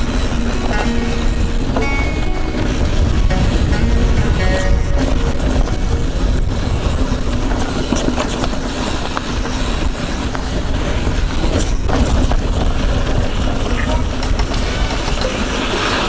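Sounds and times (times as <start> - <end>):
wind on microphone: 0.0 - 16.0
bike tyres on dirt trail: 7.7 - 16.0.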